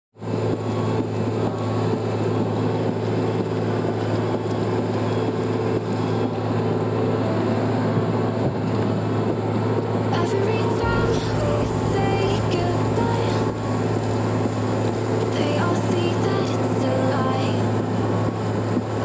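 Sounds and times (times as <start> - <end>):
excavator diesel engine drone: 0.2 - 19.0.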